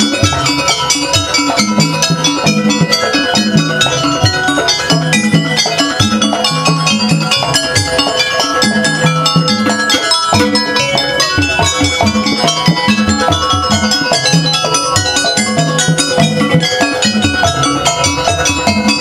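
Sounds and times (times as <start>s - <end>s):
driving drum pattern: 0.0s - 19.0s
tuned metal percussion: 0.0s - 19.0s.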